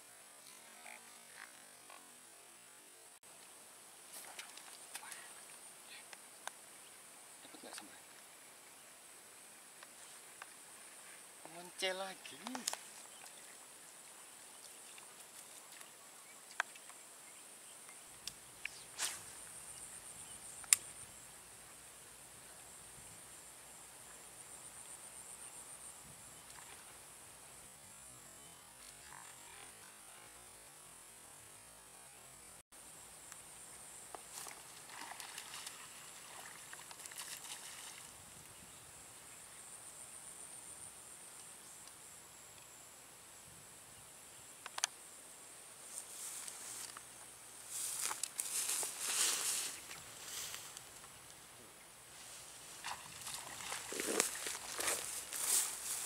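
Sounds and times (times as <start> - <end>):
insects droning: 0.0 - 56.0
sharp clicks: 44.6 - 45.0.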